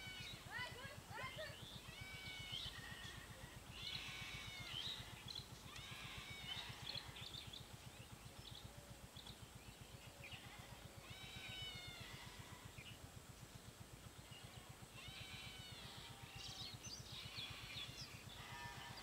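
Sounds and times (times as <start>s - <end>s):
high animal calls: 1.5s - 7.5s, 10.2s - 13.0s, 14.3s - 19.0s.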